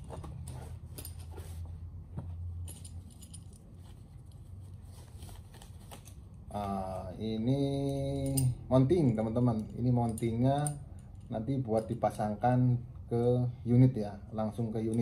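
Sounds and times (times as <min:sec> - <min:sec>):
small metal parts clinking: 0:02.6 - 0:04.4, 0:07.8 - 0:08.7, 0:09.4 - 0:12.0
wrapping rustling: 0:02.8 - 0:07.1.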